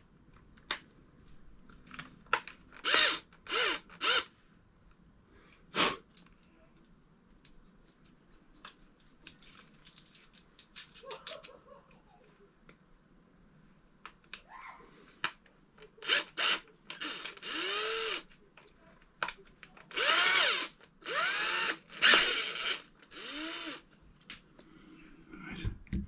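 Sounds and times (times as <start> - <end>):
power drill spinning: 2.8 - 4.3, 16.0 - 18.3, 19.9 - 23.9.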